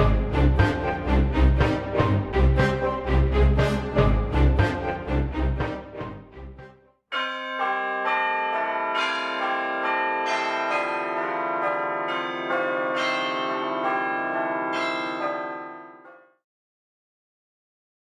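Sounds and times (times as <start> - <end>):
church bells ringing: 7.1 - 16.4.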